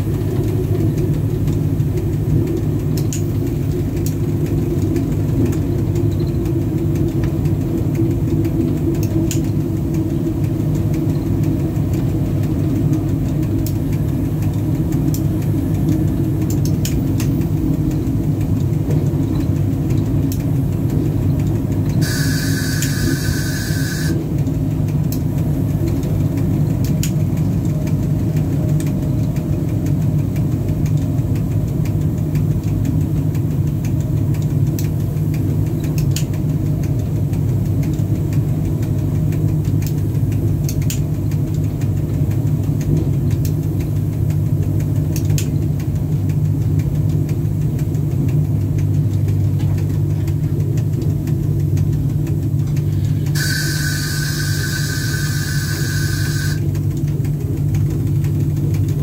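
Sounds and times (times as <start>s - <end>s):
locomotive cab rumble: 0.0s - 59.0s
sharp clicks: 21.5s - 24.2s.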